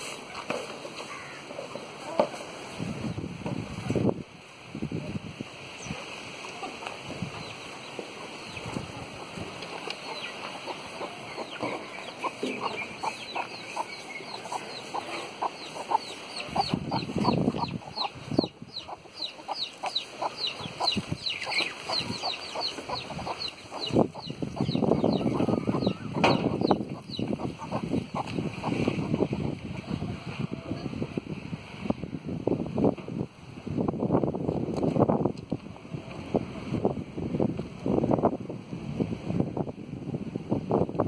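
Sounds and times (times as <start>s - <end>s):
chickens clucking: 5.8s - 31.4s.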